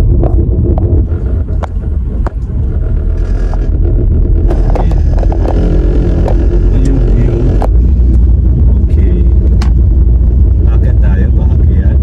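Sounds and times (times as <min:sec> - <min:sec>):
engine and road rumble: 0:00.0 - 0:12.0
sharp clicks: 0:01.5 - 0:08.2.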